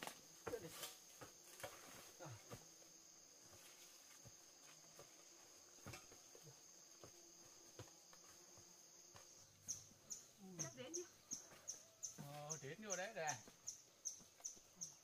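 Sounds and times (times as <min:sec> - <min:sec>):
insects chirring: 0:00.0 - 0:15.0
footsteps through undergrowth: 0:03.4 - 0:09.6.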